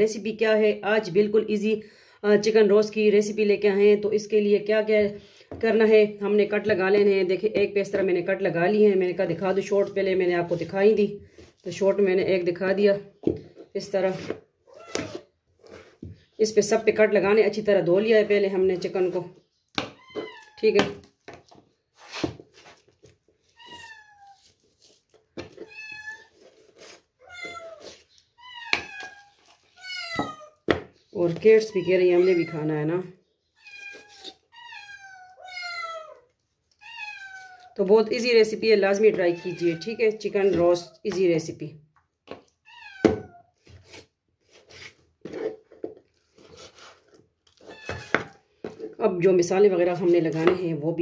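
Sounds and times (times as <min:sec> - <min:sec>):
cat meowing: 0:14.7 - 0:15.2, 0:20.0 - 0:20.6, 0:23.6 - 0:24.5, 0:25.6 - 0:26.4, 0:27.2 - 0:30.6, 0:33.6 - 0:37.8, 0:39.3 - 0:40.1, 0:42.6 - 0:43.5, 0:47.6 - 0:48.4.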